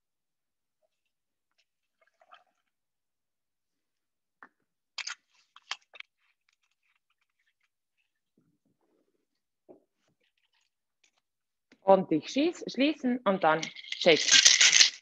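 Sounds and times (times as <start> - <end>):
ice crackling: 13.5 - 15.0.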